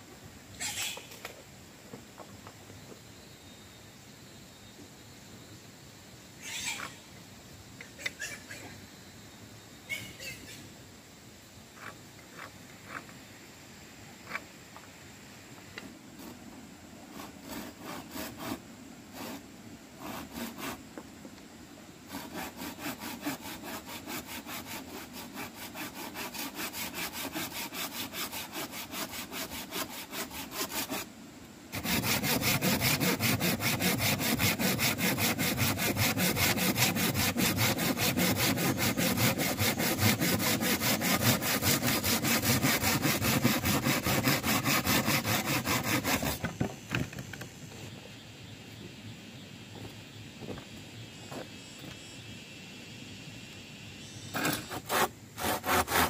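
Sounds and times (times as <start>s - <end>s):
hand saw cutting wood: 17.1s - 19.4s, 20.0s - 20.8s, 22.1s - 31.1s, 31.7s - 46.5s, 54.4s - 56.0s.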